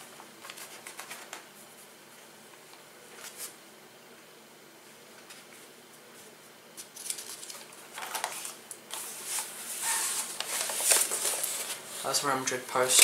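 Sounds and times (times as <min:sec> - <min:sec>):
magazine pages rustling: 0:00.4 - 0:01.6, 0:06.8 - 0:13.0.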